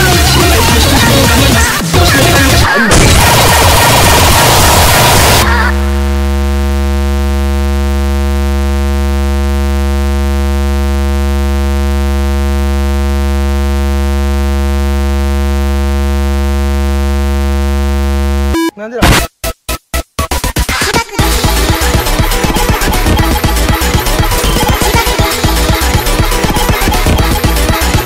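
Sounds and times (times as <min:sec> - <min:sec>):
breakcore music: 0:00.0 - 0:05.9, 0:18.5 - 0:28.0
low electronic buzz: 0:02.9 - 0:20.4, 0:21.2 - 0:28.0.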